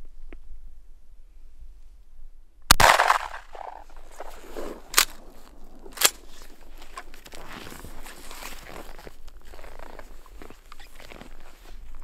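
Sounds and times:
shotgun shot: 0:02.7 - 0:05.4
sharp clicks: 0:04.9 - 0:05.3.

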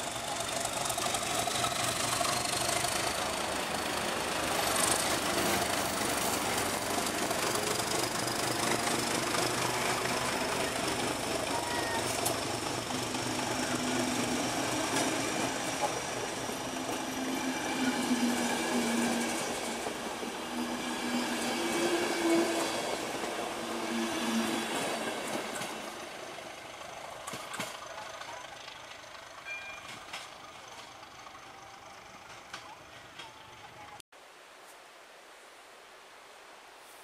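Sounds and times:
train wheels rumbling and clicking: 0:00.0 - 0:21.8, 0:24.3 - 0:33.8.

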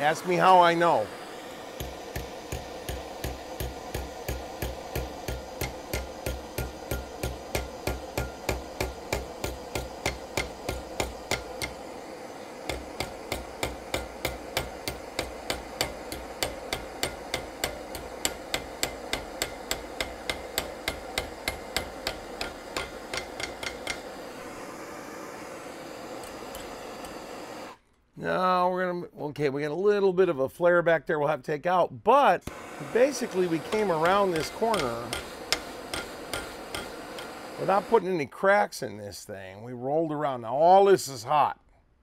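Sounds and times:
hammer striking steel bar: 0:01.8 - 0:11.8, 0:12.7 - 0:24.2, 0:33.6 - 0:37.4.

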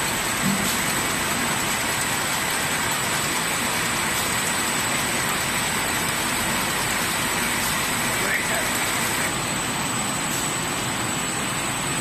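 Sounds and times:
labeling machine running: 0:00.0 - 0:09.4.

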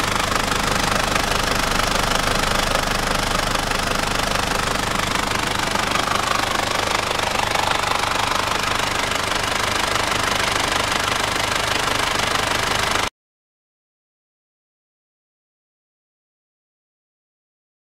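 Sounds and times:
diesel engine clattering: 0:00.0 - 0:13.1.

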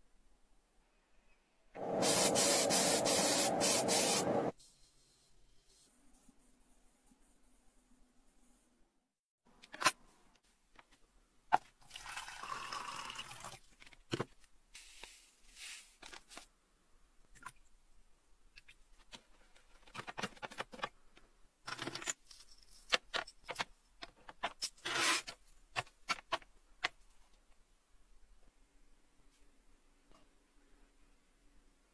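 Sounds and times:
liquid pouring and splashing: 0:11.8 - 0:13.6.

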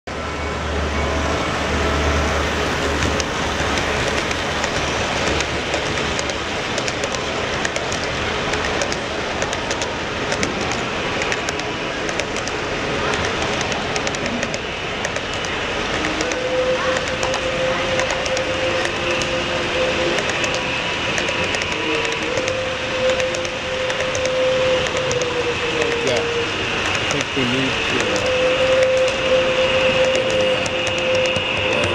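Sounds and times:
model train rumbling past: 0:00.1 - 0:31.9
wheels clicking over rail joints: 0:02.8 - 0:16.4.

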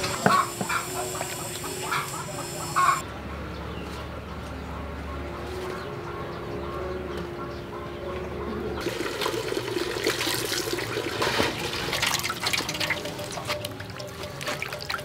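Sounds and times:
tap water running into metal basin: 0:00.0 - 0:02.4, 0:08.8 - 0:15.0
quiet background music: 0:00.0 - 0:15.0
hands splashing fish in water: 0:09.2 - 0:15.0.

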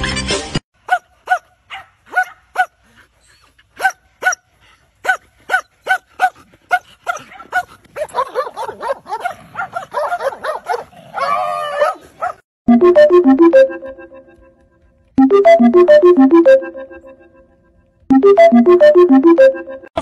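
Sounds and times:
dogs barking: 0:00.8 - 0:03.0, 0:03.8 - 0:12.4
dog drawn-out cry: 0:05.0 - 0:12.4
dog yips: 0:07.1 - 0:12.4.

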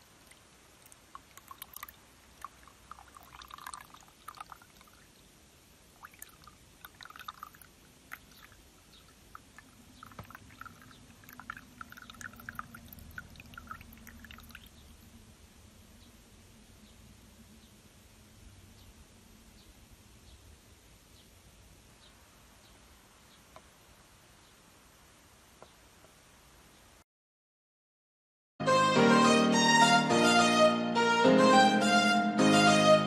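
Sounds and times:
juice pouring into a glass: 0:00.2 - 0:05.2, 0:06.0 - 0:14.7.

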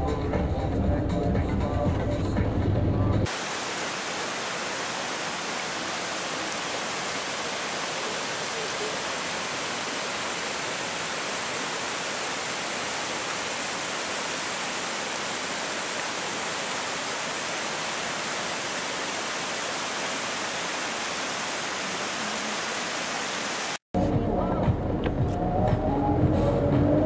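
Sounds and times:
stream rushing over rocks: 0:03.2 - 0:23.8.

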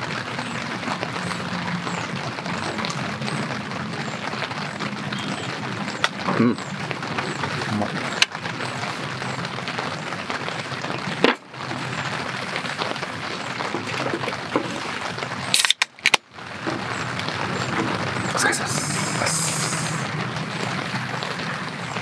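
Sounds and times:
rain pattering: 0:00.0 - 0:22.0
cans cracked open with hiss: 0:15.5 - 0:16.2.

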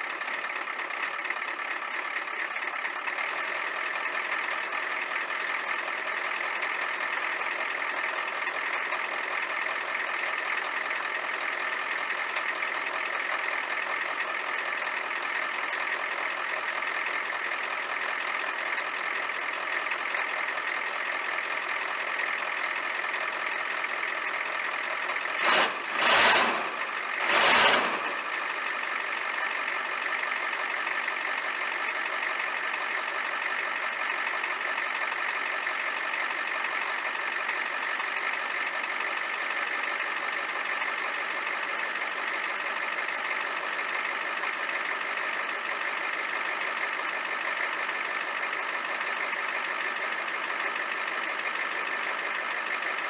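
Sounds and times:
diesel engine idling: 0:00.0 - 0:53.0
loud engine noise bursts: 0:25.3 - 0:28.7.

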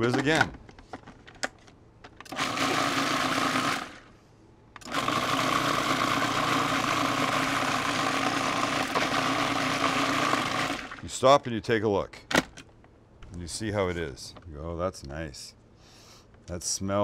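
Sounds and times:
kitchen blender running: 0:02.3 - 0:04.1, 0:04.8 - 0:11.0.

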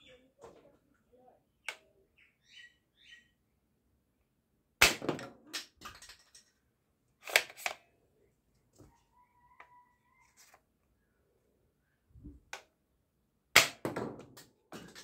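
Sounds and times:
plastic clicks: 0:07.2 - 0:07.9
faint squeaks: 0:08.7 - 0:11.1.

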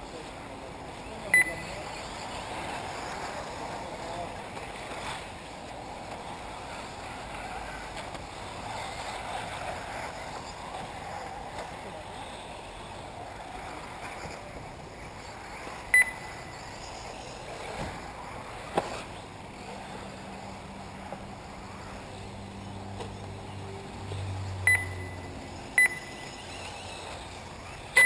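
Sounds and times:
distant cars running: 0:00.0 - 0:28.0
wind: 0:00.0 - 0:28.0
short electronic beeps: 0:01.3 - 0:01.7, 0:15.9 - 0:16.4, 0:24.7 - 0:26.5.

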